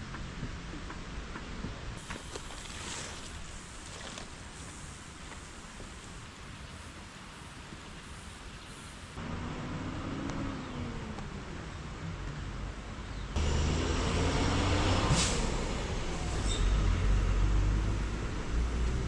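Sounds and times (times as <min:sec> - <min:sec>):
steady outdoor noise: 0:00.0 - 0:19.0
bus engine driving past: 0:09.2 - 0:19.0
air brake hiss: 0:15.1 - 0:15.6.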